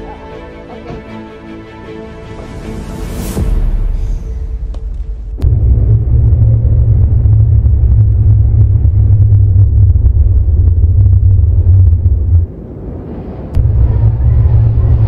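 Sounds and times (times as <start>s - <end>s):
vehicle rumbling: 4.6s - 12.8s, 13.6s - 15.0s.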